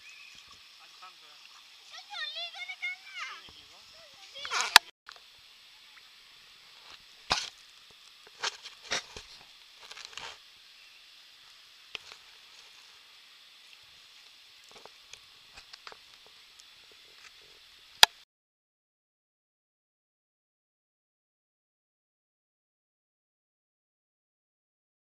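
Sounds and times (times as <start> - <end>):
steady high hiss: 0.0 - 18.2.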